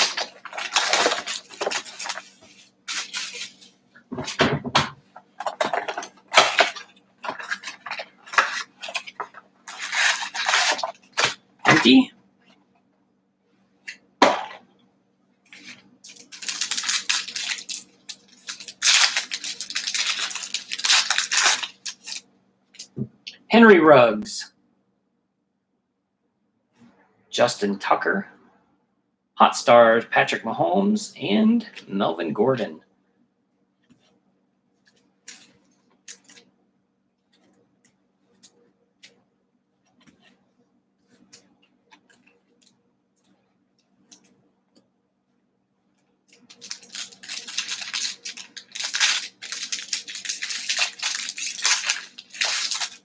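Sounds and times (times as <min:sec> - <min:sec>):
foil wrapper tearing and crinkling: 0:00.0 - 0:03.8, 0:05.9 - 0:11.4, 0:15.6 - 0:22.2, 0:46.3 - 0:53.0.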